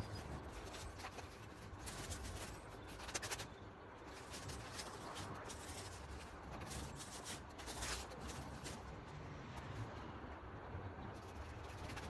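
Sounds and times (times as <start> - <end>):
dry grass rustling and crackling: 0.0 - 9.3.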